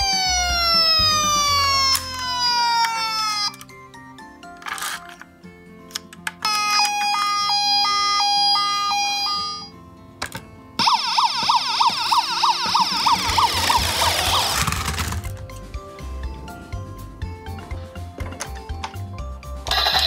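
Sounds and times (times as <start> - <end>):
toy siren warbling yelp: 0.0 - 3.8, 6.4 - 9.7, 10.8 - 15.2, 19.7 - 20.0.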